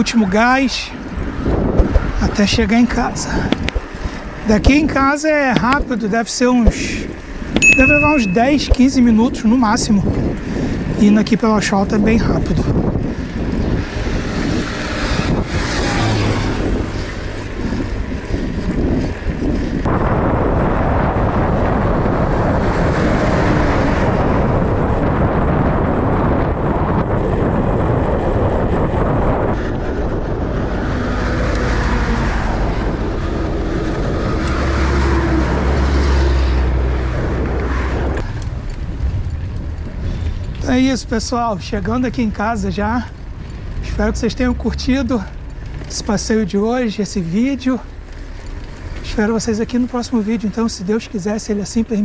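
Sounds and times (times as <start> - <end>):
passing highway traffic: 0.0 - 52.0
wind rushing over microphone: 0.0 - 52.0
passing vehicle engine drone: 13.7 - 18.2, 27.8 - 40.6.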